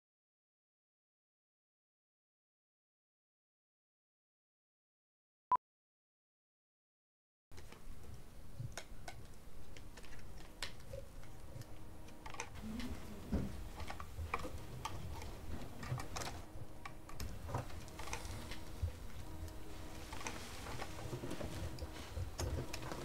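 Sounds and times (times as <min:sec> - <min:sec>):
low steady hum: 0:07.5 - 0:23.0.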